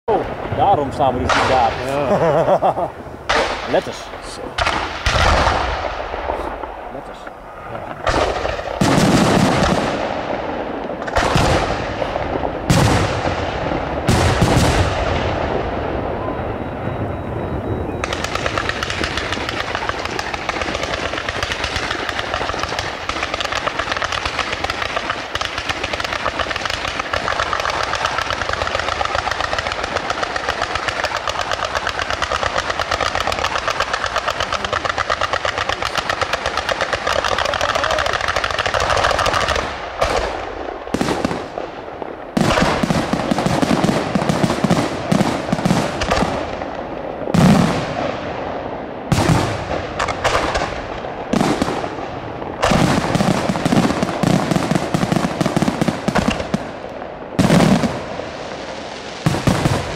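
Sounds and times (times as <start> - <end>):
fireworks crackling and banging: 0.1 - 59.9.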